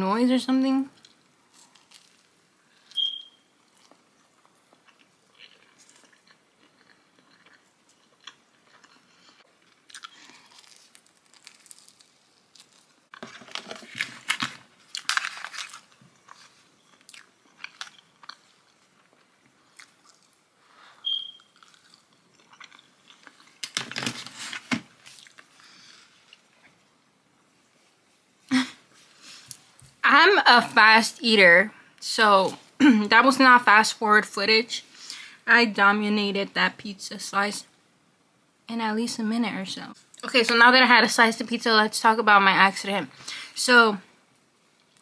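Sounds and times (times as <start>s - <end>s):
short high squeaks: 2.9s - 3.5s, 21.0s - 21.6s
chewing and biting food: 3.7s - 13.2s, 14.9s - 20.4s, 21.4s - 23.7s.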